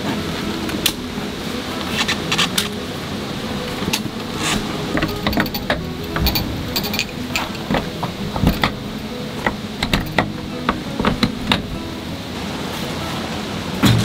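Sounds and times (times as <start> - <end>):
steady low hiss: 0.0 - 14.0
clicks and taps of gear handling: 3.8 - 8.8, 9.4 - 11.8.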